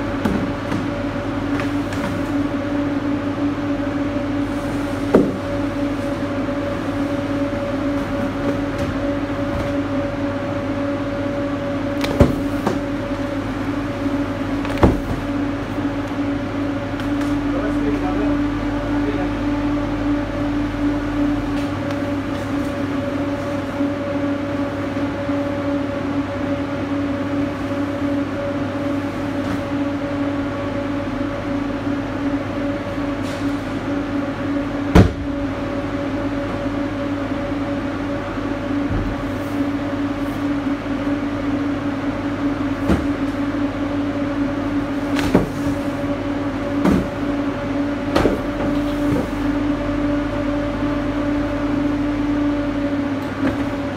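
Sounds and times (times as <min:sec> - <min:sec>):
cooling unit humming: 0:00.0 - 0:53.9.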